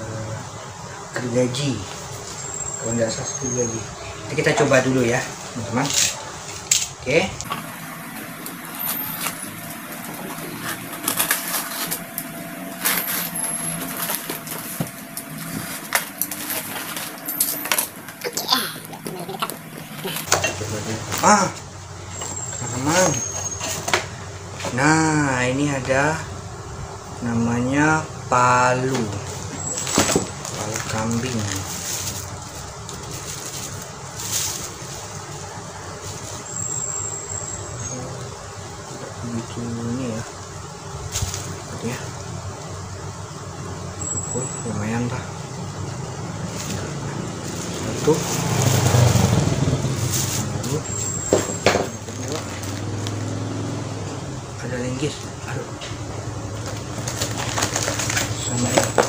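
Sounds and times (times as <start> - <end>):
plastic wrapping crinkling: 7.5 - 21.3, 29.2 - 35.3, 50.0 - 53.3, 56.5 - 59.0
cardboard packaging ripping: 7.6 - 20.9, 52.0 - 53.4, 56.5 - 59.0.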